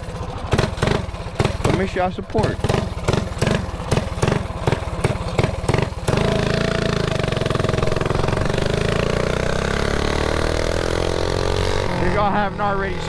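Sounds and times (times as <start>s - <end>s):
small engine idling and revving: 0.0s - 13.0s
man talking: 1.7s - 2.6s, 11.9s - 13.0s.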